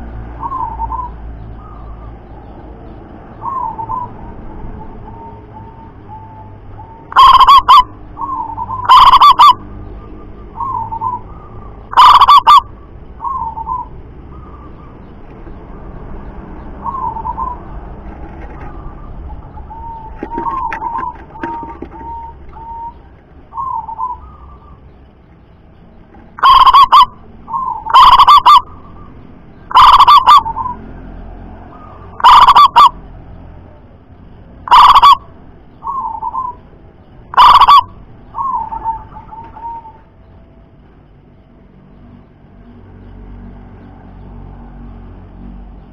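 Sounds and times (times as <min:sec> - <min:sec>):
dove cooing: 0:00.4 - 0:02.2, 0:03.4 - 0:09.7, 0:10.5 - 0:15.0, 0:16.8 - 0:25.0, 0:26.4 - 0:29.1, 0:29.7 - 0:30.8, 0:31.7 - 0:33.0, 0:34.7 - 0:36.6, 0:37.3 - 0:40.2
loud distorted dove calls: 0:05.6 - 0:09.7, 0:10.5 - 0:14.8, 0:16.8 - 0:17.8, 0:18.4 - 0:24.9, 0:26.3 - 0:30.9, 0:31.6 - 0:33.1, 0:34.6 - 0:36.7, 0:37.3 - 0:40.1.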